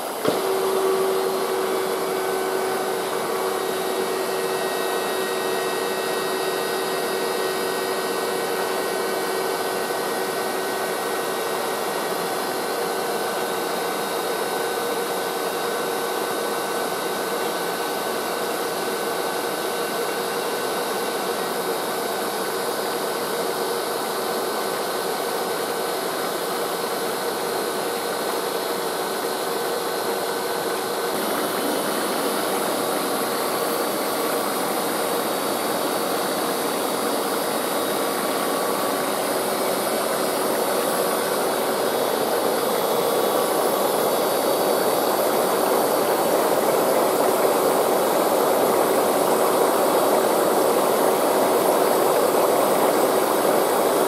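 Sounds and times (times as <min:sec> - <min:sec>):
water rushing and splashing: 0:31.1 - 0:54.0.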